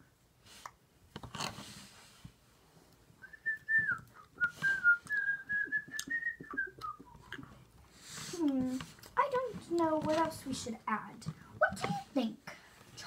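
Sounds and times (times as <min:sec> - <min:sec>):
person whistling a tune: 0:03.2 - 0:07.4
hands working kinetic sand: 0:07.9 - 0:12.3.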